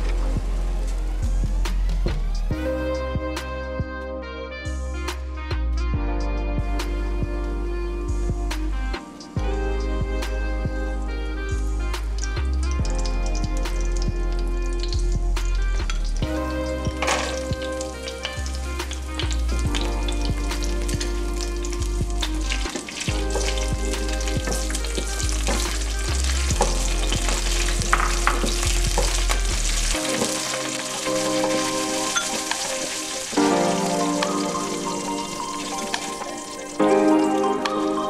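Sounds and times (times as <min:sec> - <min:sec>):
background music: 0:00.0 - 0:38.0
nuts sizzling in hot ghee: 0:14.4 - 0:36.9.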